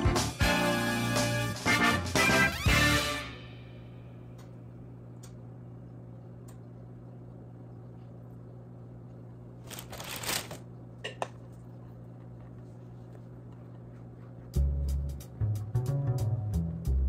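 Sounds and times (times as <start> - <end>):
steady low hum: 3.2 - 10.0, 10.6 - 17.0.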